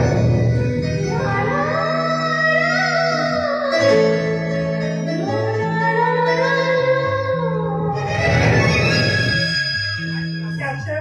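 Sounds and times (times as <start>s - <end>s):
electronic keyboard music: 0.0s - 11.0s.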